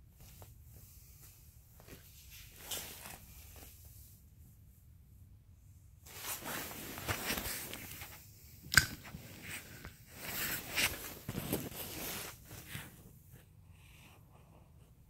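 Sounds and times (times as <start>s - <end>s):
fabric brushing: 6.0s - 8.3s, 9.2s - 13.1s.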